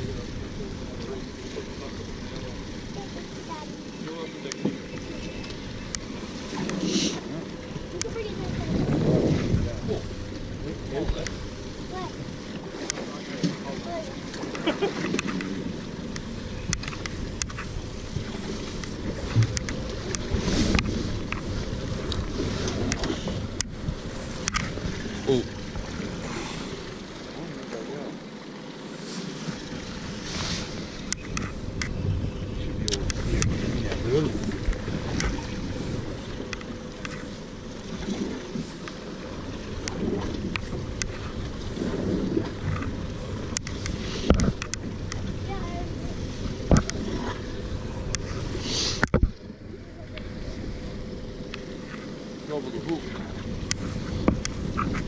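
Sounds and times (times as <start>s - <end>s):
sea water around boat: 0.0s - 55.0s
wind on microphone: 7.8s - 12.4s, 15.0s - 27.0s, 29.5s - 37.2s, 39.4s - 51.9s, 53.1s - 55.0s
faint clicks: 14.3s - 17.8s, 18.7s - 23.7s, 24.4s - 24.8s, 31.0s - 32.2s, 36.4s - 37.4s, 39.8s - 41.4s, 42.4s - 45.3s, 53.6s - 55.0s
sharp clicks and knocks: 43.5s - 45.2s.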